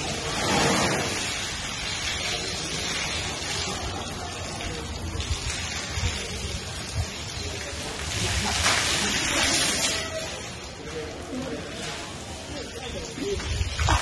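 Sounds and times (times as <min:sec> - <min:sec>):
water from hose splattering on floor: 0:00.0 - 0:14.0
water splashes: 0:00.0 - 0:14.0.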